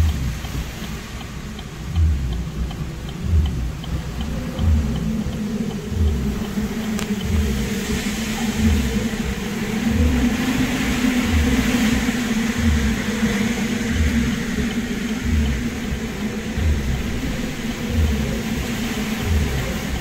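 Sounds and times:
vehicle humming: 0.0s - 20.0s
wind and rain roaring: 0.0s - 20.0s.

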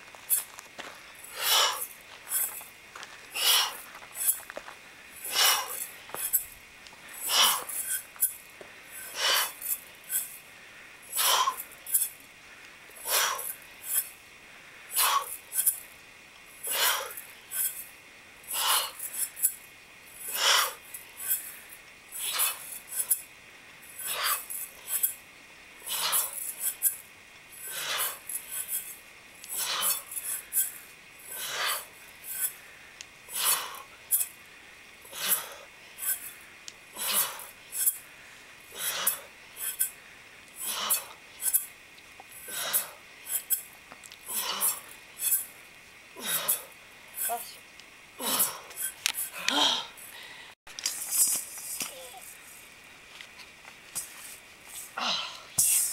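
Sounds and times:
rasping bursts of air: 1.2s - 2.6s, 3.3s - 4.5s, 5.1s - 12.3s, 12.9s - 14.2s, 14.8s - 15.9s, 16.5s - 25.2s, 25.8s - 47.4s, 48.3s - 49.4s, 55.6s - 55.9s.

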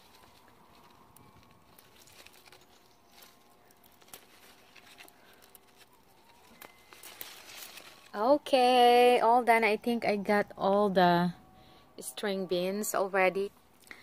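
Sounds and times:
stems clicking: 0.0s - 8.4s
leaves rustling: 0.0s - 10.8s.

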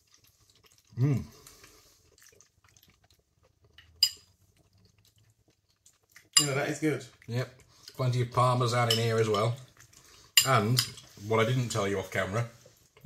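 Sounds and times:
person humming: 1.0s - 1.3s
metal fork clinking on ceramic bowl: 4.0s - 4.3s, 6.4s - 6.6s, 8.8s - 9.5s.

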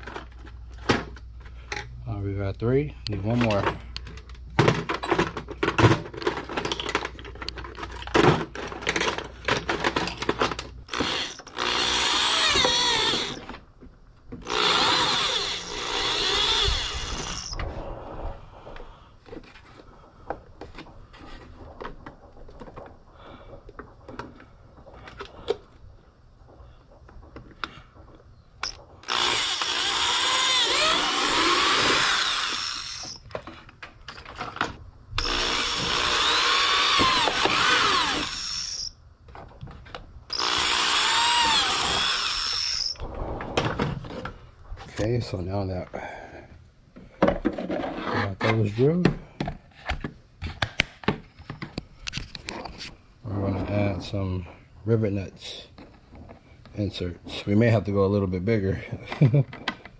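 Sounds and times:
hardware clicking and rattling: 3.1s - 13.6s
power drill drilling: 10.9s - 13.6s, 14.4s - 17.6s, 28.6s - 33.2s, 35.2s - 38.9s, 40.3s - 43.0s.

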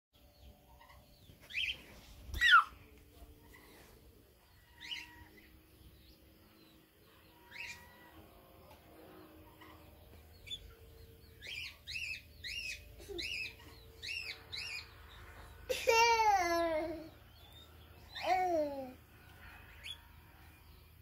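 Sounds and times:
small bird chirping: 0.2s - 15.7s.

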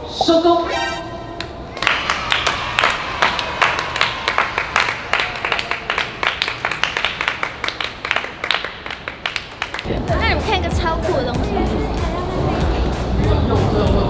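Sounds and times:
people clapping: 1.4s - 10.0s.

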